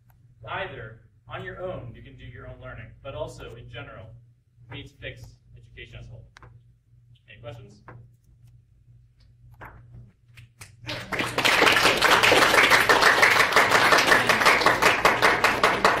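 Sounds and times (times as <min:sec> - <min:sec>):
low room hum: 0:00.0 - 0:16.0
audience applause: 0:10.9 - 0:16.0.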